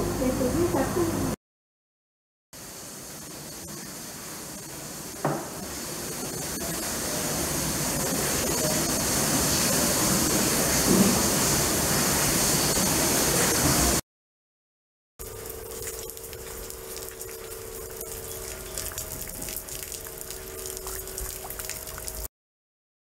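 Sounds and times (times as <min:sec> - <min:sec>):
rushing water hiss: 0:02.6 - 0:14.0, 0:15.2 - 0:22.3
sharp knock: 0:05.2 - 0:05.6.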